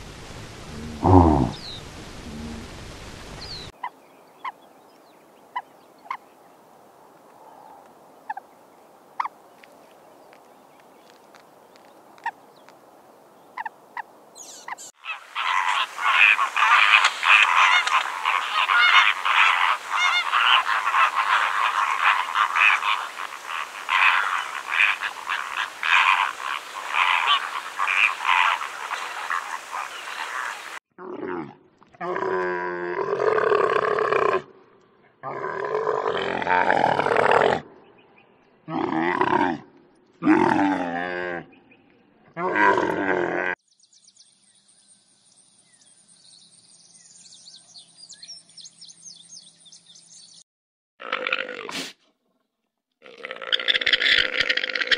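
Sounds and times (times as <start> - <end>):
flamingos honking: 14.6 - 30.8.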